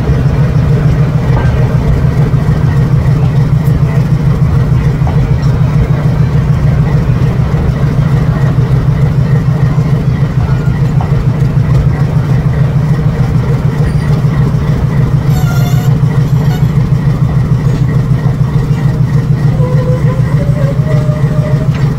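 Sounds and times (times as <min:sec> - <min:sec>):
diesel locomotive idling: 0:00.0 - 0:21.9
high-pitched squeal: 0:15.3 - 0:16.8.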